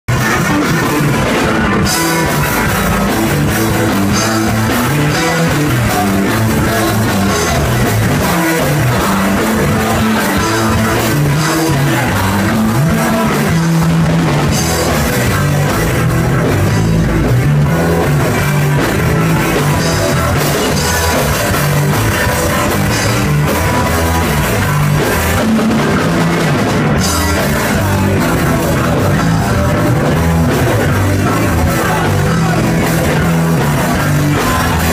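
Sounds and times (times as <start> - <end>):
bass line: 0.0 - 34.9
drums: 0.1 - 34.9
electric guitar: 0.1 - 34.9.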